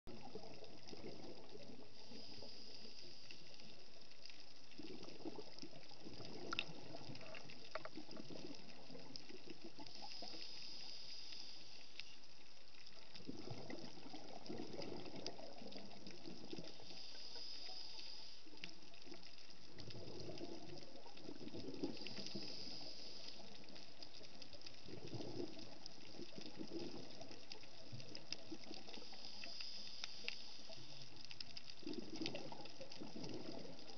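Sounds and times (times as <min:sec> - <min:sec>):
regulator hissing inhale: 0:02.0 - 0:03.8, 0:09.8 - 0:12.2, 0:16.7 - 0:18.6, 0:21.9 - 0:23.8, 0:28.9 - 0:31.2
gurgling exhaled bubbles: 0:04.8 - 0:10.0, 0:13.0 - 0:16.8, 0:19.7 - 0:22.8, 0:24.8 - 0:29.0, 0:31.8 - 0:33.9.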